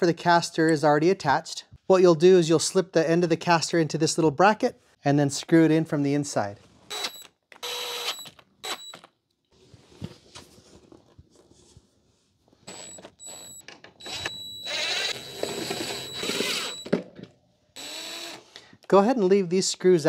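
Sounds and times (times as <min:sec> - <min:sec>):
cordless drill whirring: 0:06.9 - 0:09.1, 0:12.7 - 0:17.0, 0:17.8 - 0:18.5.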